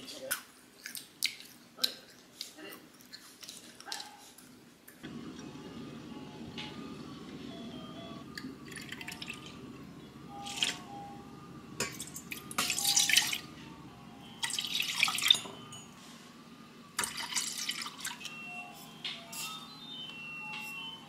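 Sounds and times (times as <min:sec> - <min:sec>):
liquid pouring and splashing: 0:17.0 - 0:18.3.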